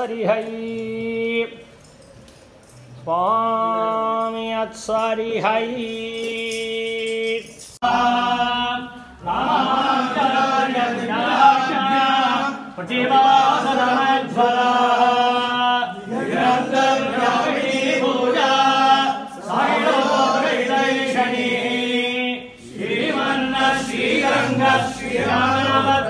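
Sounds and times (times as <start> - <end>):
men chanting in unison: 7.8 - 26.0.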